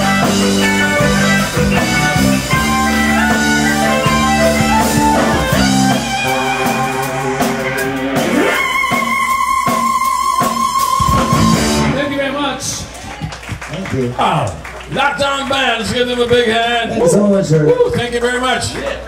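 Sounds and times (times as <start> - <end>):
guitar rising slide: 0.0 - 12.1
rock band playing instrumental: 0.0 - 13.6.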